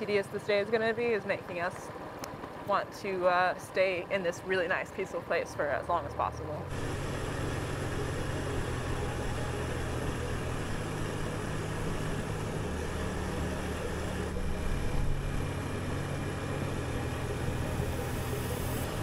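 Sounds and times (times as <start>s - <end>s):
motorbike engine running: 6.7s - 19.0s.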